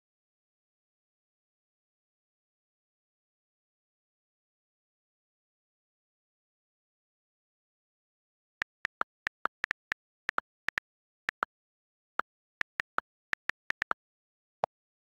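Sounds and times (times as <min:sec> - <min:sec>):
on-screen keyboard clicks: 0:08.6 - 0:11.5, 0:12.6 - 0:14.0.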